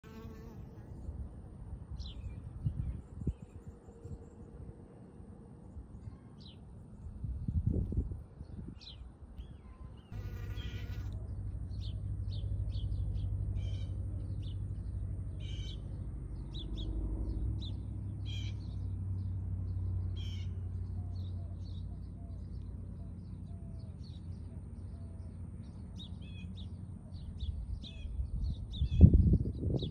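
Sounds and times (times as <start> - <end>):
honeybees buzzing: 10.1 - 11.2.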